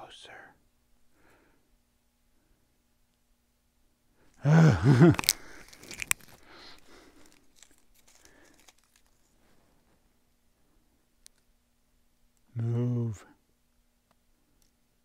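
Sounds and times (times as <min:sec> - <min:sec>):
plastic film crinkling: 0:04.8 - 0:09.8.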